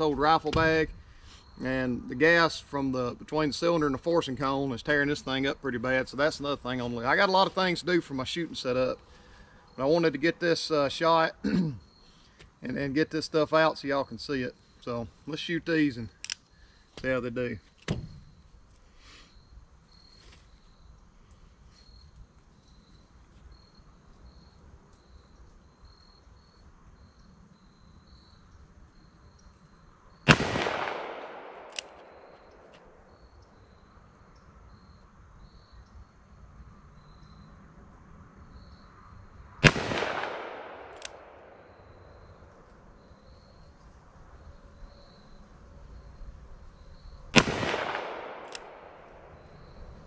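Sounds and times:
revolver shots with echo: 30.3 - 32.3, 39.6 - 41.6, 47.4 - 49.5.

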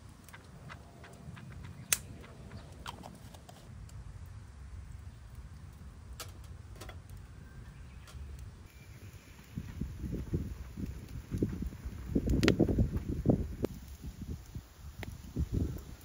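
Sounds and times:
sharp clicks and ticks: 0.2 - 3.1.

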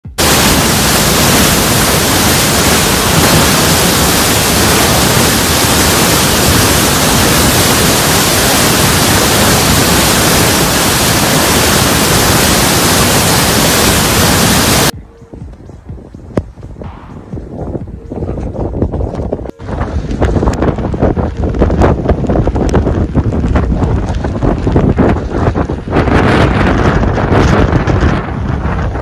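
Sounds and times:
flooded river roaring: 0.0 - 14.9.

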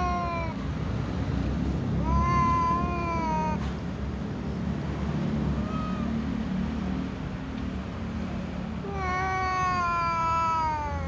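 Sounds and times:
cat meowing: 0.0 - 0.6, 2.0 - 3.7, 5.4 - 6.4, 8.8 - 11.0.

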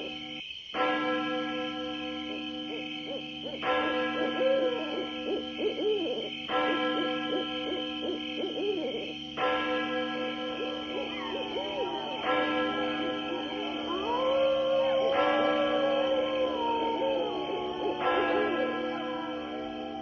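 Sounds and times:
eerie held drone: 2.3 - 20.0
owl-like hoots: 4.2 - 9.2, 10.6 - 19.2.

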